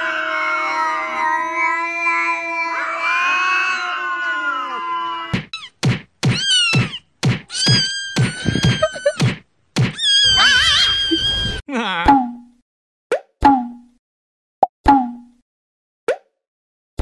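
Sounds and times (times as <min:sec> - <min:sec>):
cat meowing: 0:00.0 - 0:09.2, 0:10.0 - 0:11.6
high squeaky cat cries: 0:01.6 - 0:09.3, 0:09.9 - 0:11.6
sharp slap-like hits: 0:05.4 - 0:10.0
wavering squeal: 0:10.0 - 0:11.6.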